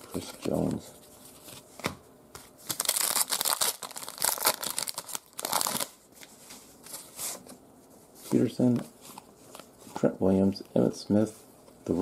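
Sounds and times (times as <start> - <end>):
foil wrapper tearing and crinkling: 2.7 - 5.9.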